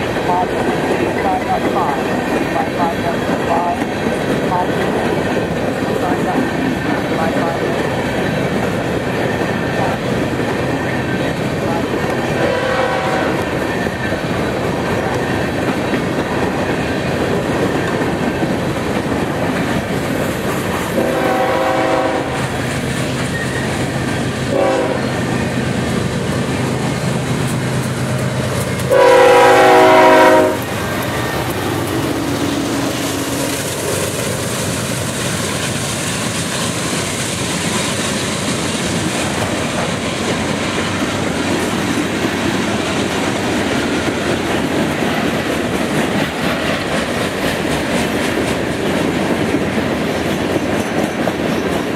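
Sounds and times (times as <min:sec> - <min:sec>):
freight train rumble: 0:00.0 - 0:51.9
train cars clickety-clack: 0:00.0 - 0:51.9
locomotive air horn blasts: 0:12.4 - 0:13.4, 0:21.0 - 0:22.5, 0:24.5 - 0:25.2, 0:28.9 - 0:30.7.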